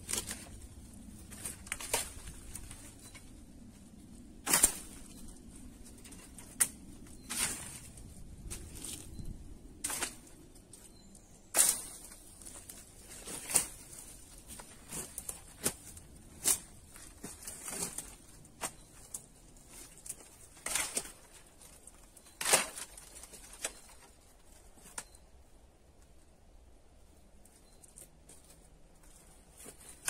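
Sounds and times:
dry sticks snapping and rustling: 0.0 - 3.4, 4.4 - 9.1, 9.8 - 10.9, 11.5 - 24.2.

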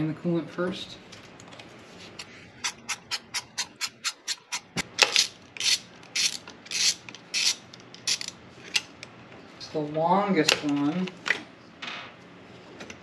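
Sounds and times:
ratchet wrench clicking: 2.6 - 8.3.

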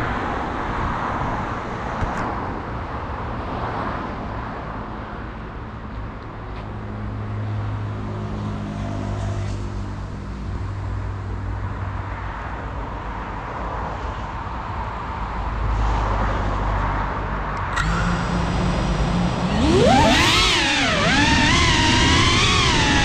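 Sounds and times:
steady rush of noise: 17.5 - 23.0
click: 17.6 - 18.7
drone motors humming and whining: 17.6 - 23.0.

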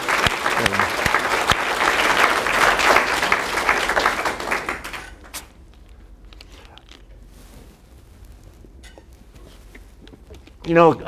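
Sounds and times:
audience applauding: 0.0 - 5.5.

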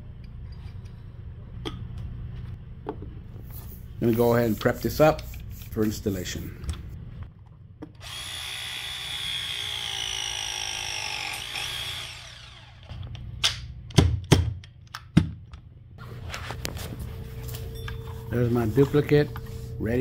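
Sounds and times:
cordless press tool motor running: 8.0 - 13.0.

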